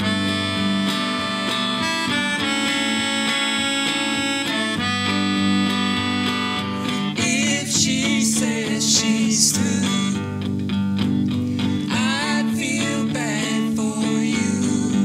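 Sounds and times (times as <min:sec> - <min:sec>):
electric guitar strumming chords: 0:00.0 - 0:15.0
harmonica melody: 0:00.0 - 0:15.0
woman singing: 0:07.1 - 0:10.4, 0:11.9 - 0:15.0.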